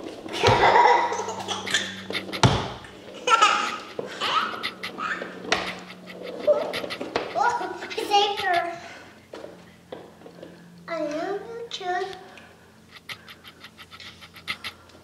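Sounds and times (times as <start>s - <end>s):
toddler laughing and giggling: 0.3s - 9.0s
sharp thumps: 2.0s - 2.9s.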